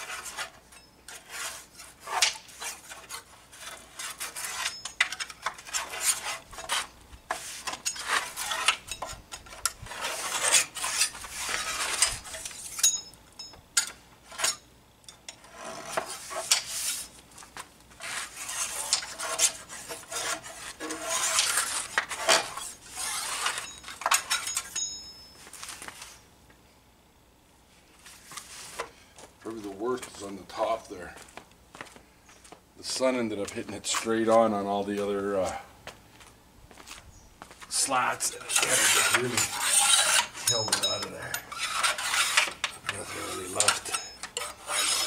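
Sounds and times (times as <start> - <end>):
scraping and rubbing wood: 0.0 - 12.8, 15.4 - 24.7, 37.8 - 45.0.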